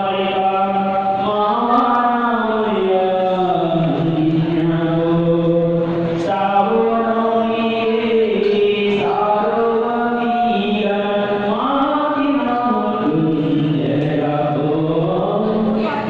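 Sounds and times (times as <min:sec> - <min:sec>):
man singing slow melody: 0:00.0 - 0:16.0.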